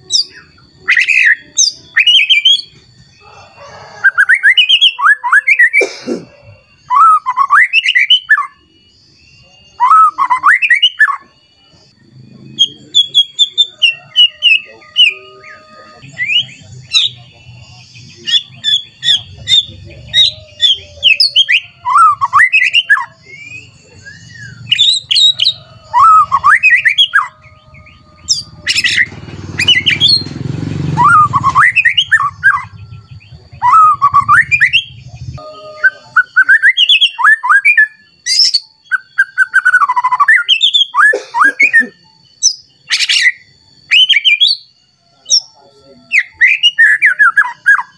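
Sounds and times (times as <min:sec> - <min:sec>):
bird singing whistled notes: 0:00.0 - 0:05.8, 0:06.4 - 0:47.9
harsh rasping bird call: 0:00.0 - 0:08.6, 0:12.7 - 0:17.5, 0:18.1 - 0:42.0.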